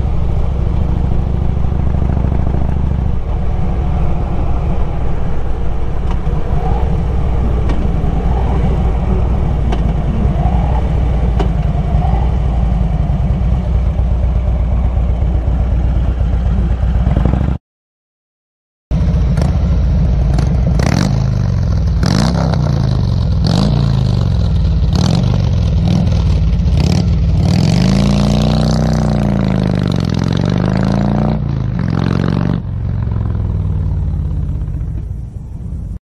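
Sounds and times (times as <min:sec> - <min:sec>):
motorcycle engine revving: 0:00.0 - 0:17.6, 0:18.9 - 0:35.2.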